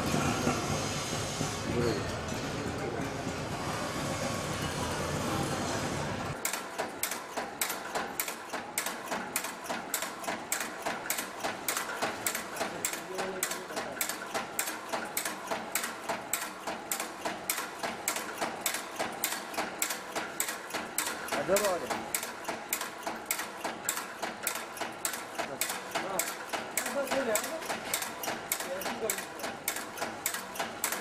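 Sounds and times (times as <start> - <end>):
machine clacking rhythmically: 6.3 - 31.0.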